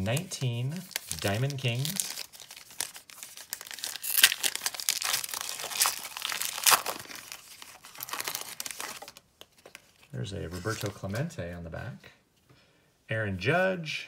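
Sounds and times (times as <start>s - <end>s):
foil wrapper tearing and crinkling: 0.0s - 9.2s.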